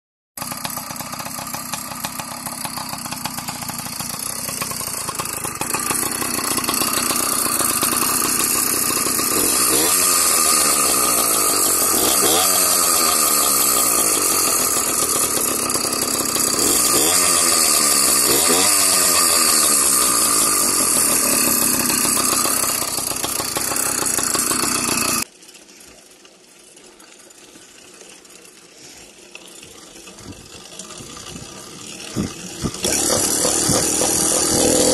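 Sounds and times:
two-stroke engine revving: 0.4 - 25.3, 29.5 - 34.9.

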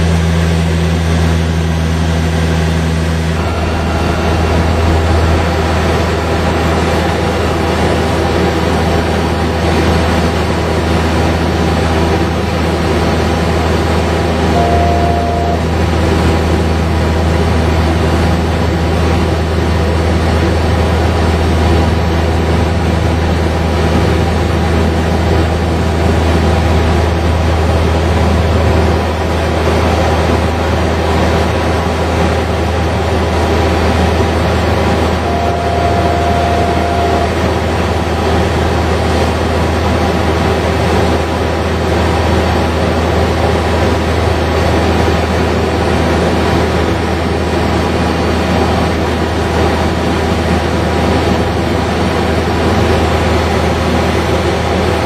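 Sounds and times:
short steady tone: 0.0 - 8.5, 14.4 - 16.9, 34.6 - 38.8
turboprop engines droning: 0.0 - 55.0.

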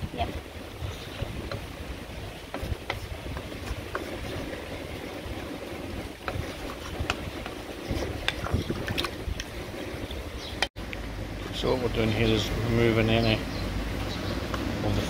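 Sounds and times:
steady low rumble: 0.0 - 15.0
wooden spatula scraping a pot: 0.6 - 10.7.

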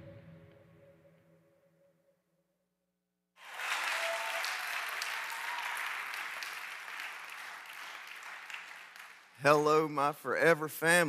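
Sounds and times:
audience applauding: 3.4 - 10.1.

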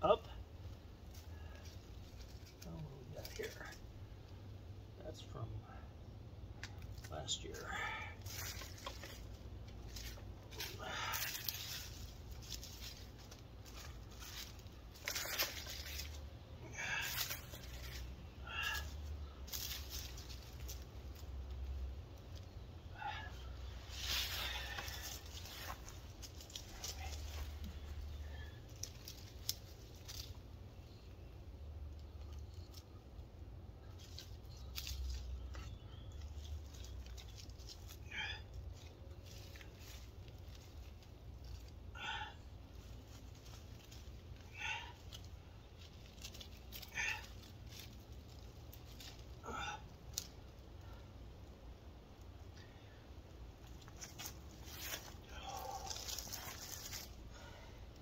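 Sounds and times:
dry leaves rustling: 1.1 - 3.8, 6.9 - 33.2, 33.8 - 58.0.

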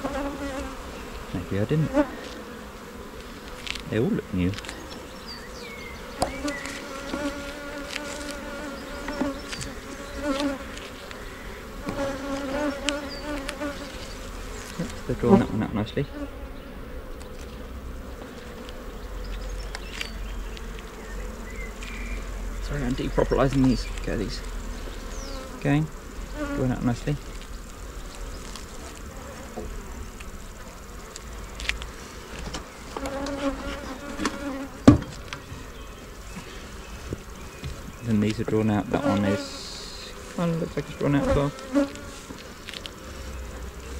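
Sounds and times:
bees buzzing: 0.0 - 43.9
hive tool clicks and scrapes: 3.2 - 3.9, 6.2 - 11.2.

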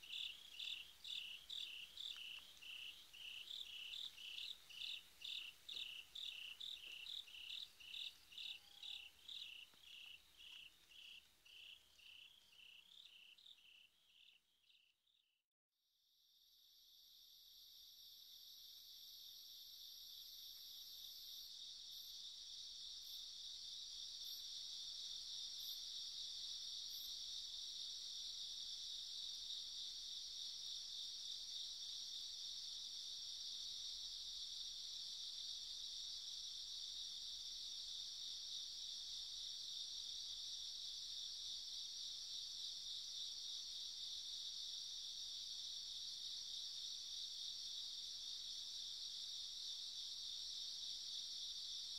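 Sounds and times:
crickets trilling: 0.0 - 14.8.

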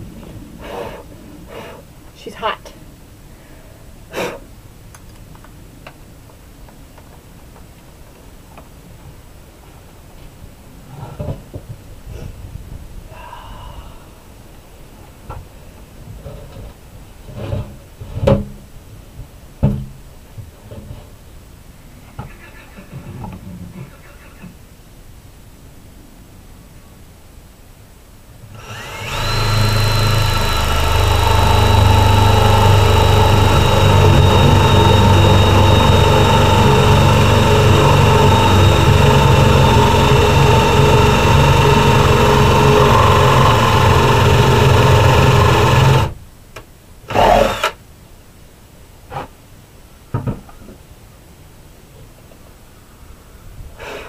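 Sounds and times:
power drill boring into wood: 28.5 - 46.2, 47.1 - 47.8.

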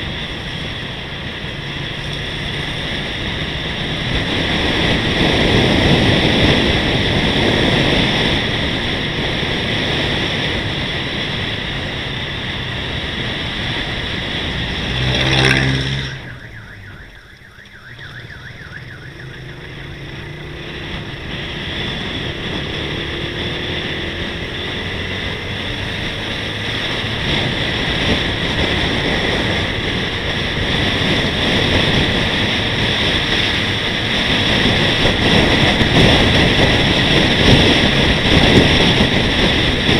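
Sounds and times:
wind and road noise rush: 0.0 - 39.9
short pitched tone: 15.0 - 20.3.

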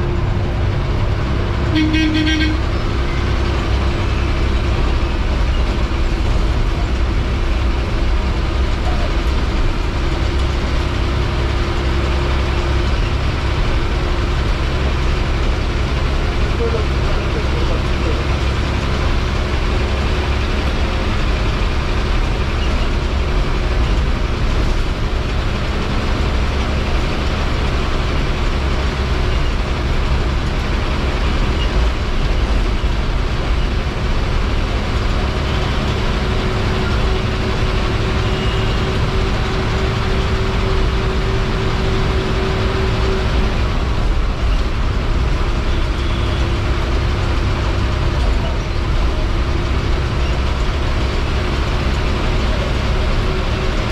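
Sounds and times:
diesel bus engine running: 0.0 - 53.9
road noise: 0.0 - 53.9.

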